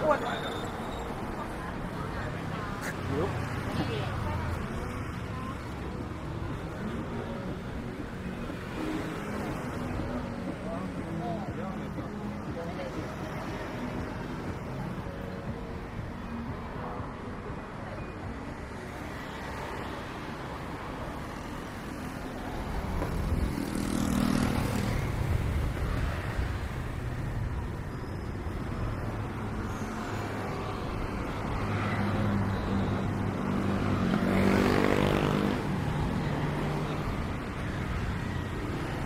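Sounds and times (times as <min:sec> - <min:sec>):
vehicles passing close by: 0:00.0 - 0:39.0.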